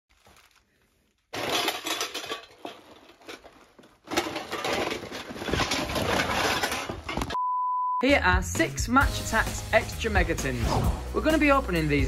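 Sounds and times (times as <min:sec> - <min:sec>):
metal tins and cardboard clattering: 0:01.3 - 0:07.4.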